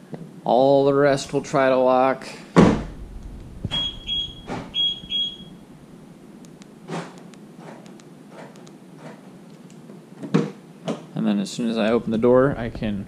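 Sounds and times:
car electronic beeps: 3.7s - 5.6s.

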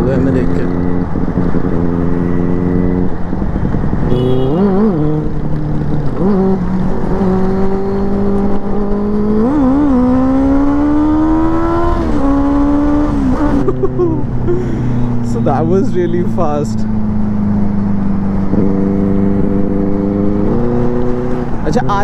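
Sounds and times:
motorcycle engine accelerating: 0.0s - 22.0s
wind rush: 0.6s - 4.2s.

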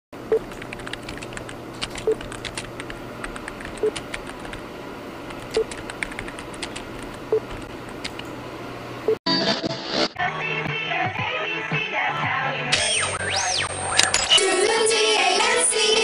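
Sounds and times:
faint steady hum: 0.2s - 9.2s
keyboard typing clicks: 0.3s - 4.6s, 5.3s - 8.4s.

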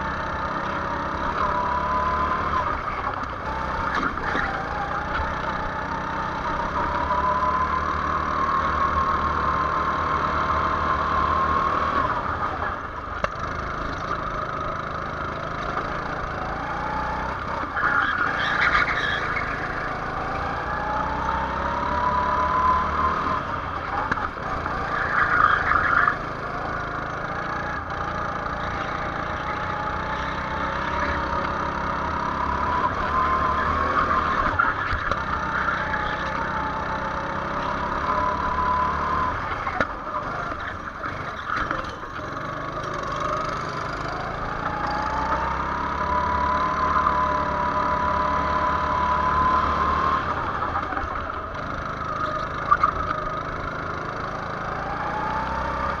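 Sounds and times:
go-kart engine accelerating: 0.0s - 56.0s.

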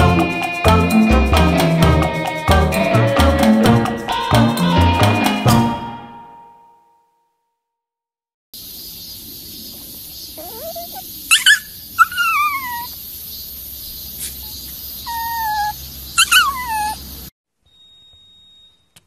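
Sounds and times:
dog howl-like cry: 10.4s - 12.9s, 15.1s - 17.0s
dog whining: 10.4s - 13.0s, 14.2s - 17.1s
dog yipping: 10.4s - 13.0s, 14.2s - 17.1s.

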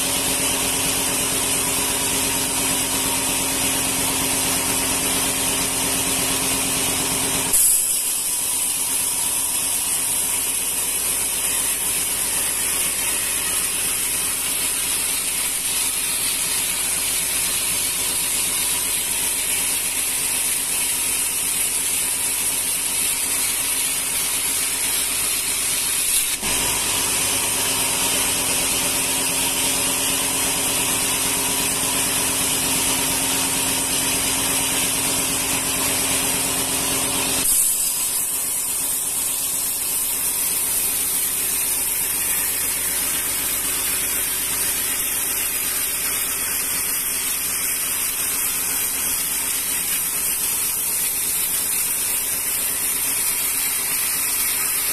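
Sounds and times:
band saw sawing a log: 0.0s - 54.9s.

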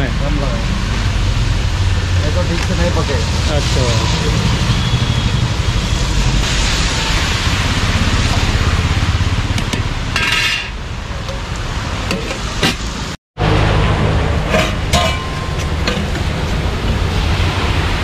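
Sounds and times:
steady rushing noise: 0.0s - 18.0s
spoon clinking against pot: 14.5s - 16.2s.

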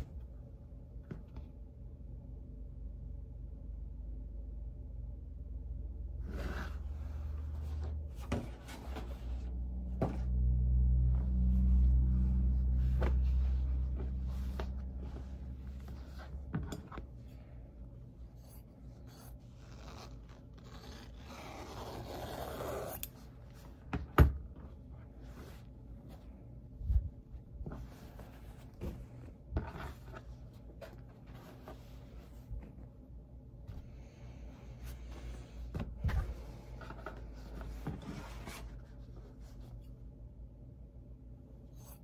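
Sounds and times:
low steady hum: 0.0s - 42.0s
fabric sliding: 6.2s - 10.3s, 11.1s - 17.1s, 18.3s - 23.8s
fabric rustling and scraping: 6.2s - 40.0s.

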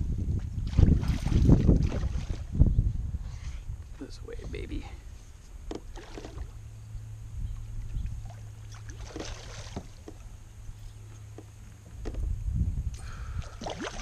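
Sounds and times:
low steady rumble: 0.0s - 14.0s
light splashes or knocks: 5.6s - 6.5s, 8.2s - 10.3s
fish thrashing and splashing: 8.3s - 10.0s, 13.5s - 14.0s.

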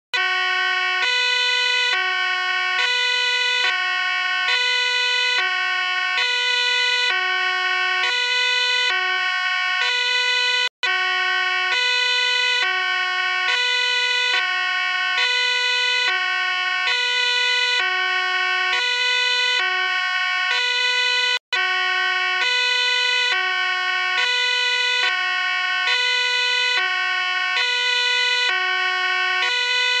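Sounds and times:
looping electronic melody: 6.2s - 14.3s.

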